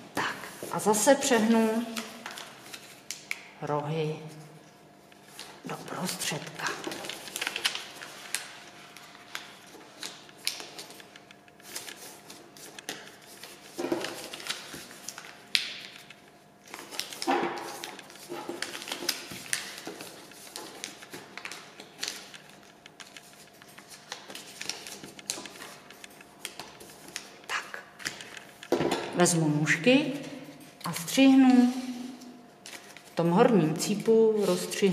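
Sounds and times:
paper rustling and crinkling: 0.5s - 3.4s, 5.2s - 28.9s, 30.4s - 34.9s.

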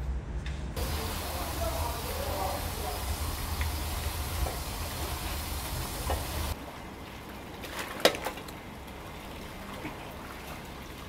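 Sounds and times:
brush scrubbing wok: 0.8s - 6.6s
tap water spraying into wok: 0.8s - 6.6s.

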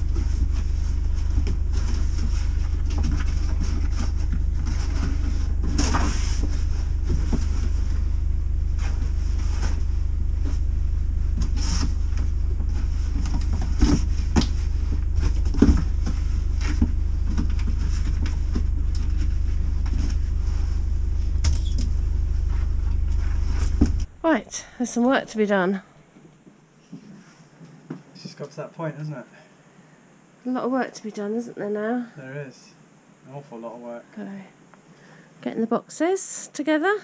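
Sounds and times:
cardboard boxes rustling: 0.0s - 24.4s
steady low hum: 0.0s - 37.0s.

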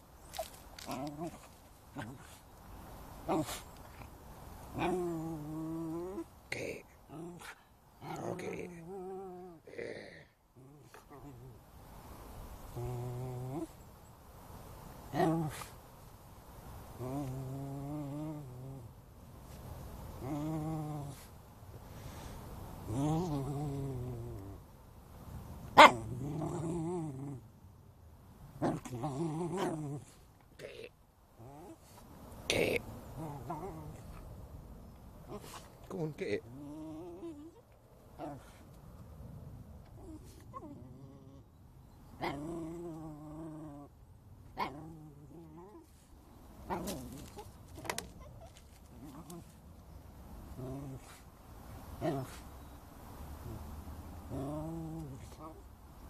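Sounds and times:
dog growling: 0.4s - 2.4s, 4.7s - 6.3s, 7.1s - 11.6s, 12.7s - 13.8s, 15.1s - 15.7s, 17.0s - 18.9s, 20.2s - 21.3s, 22.8s - 24.6s, 25.8s - 27.5s, 28.6s - 31.8s, 32.5s - 34.3s, 36.3s - 37.6s, 38.2s - 38.6s, 40.0s - 41.5s, 42.2s - 44.0s, 44.6s - 45.9s, 50.5s - 51.2s, 53.4s - 55.6s.

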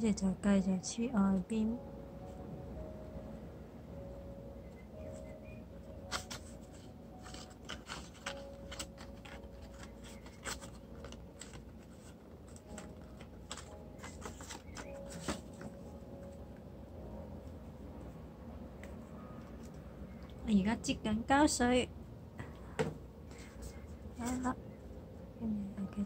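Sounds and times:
stiff paper crackling and rustling: 6.0s - 16.0s.

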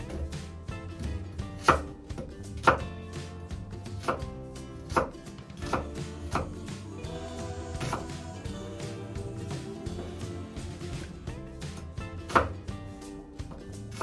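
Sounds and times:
knife chopping on wooden board: 1.6s - 3.0s, 3.9s - 6.5s, 12.2s - 12.7s.

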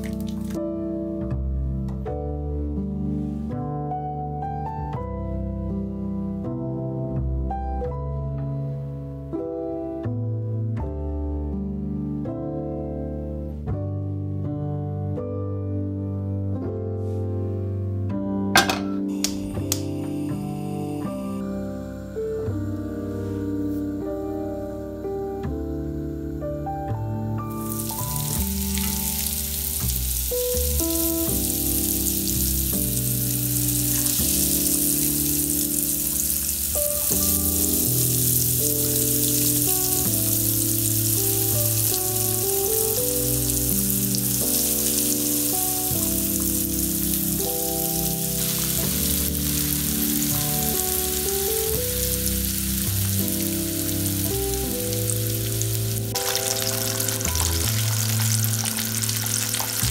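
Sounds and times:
food sizzling in hot oil: 0.0s - 0.6s, 27.4s - 59.9s
soft piano melody: 0.0s - 59.9s.

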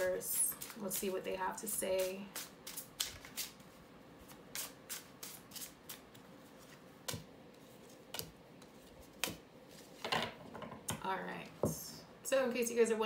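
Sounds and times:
cards being shuffled: 2.4s - 3.7s.

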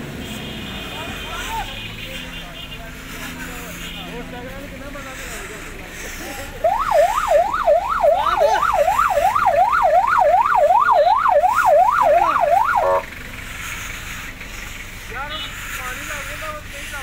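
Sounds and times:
electronic siren wailing: 6.6s - 13.1s.

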